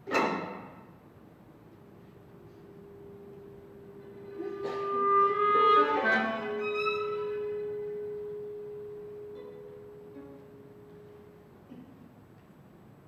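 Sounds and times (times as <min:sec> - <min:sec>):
clarinet violin and cello held note: 0:02.4 - 0:11.0.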